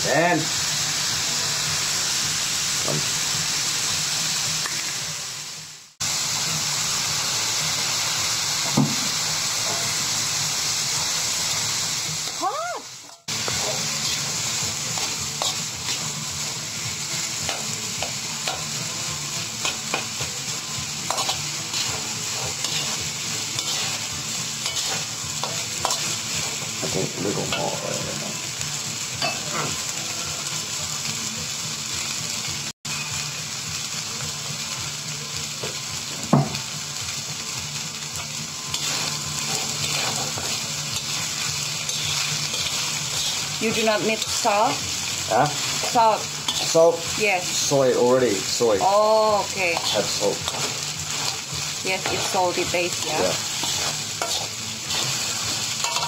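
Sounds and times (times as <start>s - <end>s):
rice sizzling in a wok: 0.0s - 56.0s
metal spatula scraping a wok: 13.3s - 18.8s, 19.5s - 27.9s, 38.2s - 47.1s, 49.4s - 56.0s.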